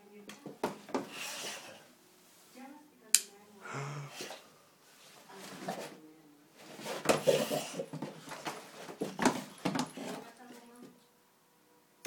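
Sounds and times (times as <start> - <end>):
knocks scuffs and rattles: 6.6 - 10.8.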